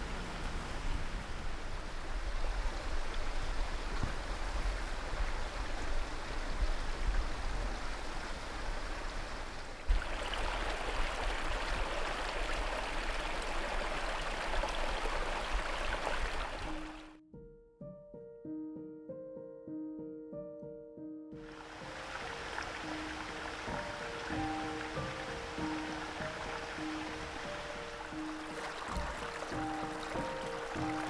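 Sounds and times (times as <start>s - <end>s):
wind rumbling on microphone: 0.0s - 17.1s
outdoor rushing hiss: 21.4s - 31.0s.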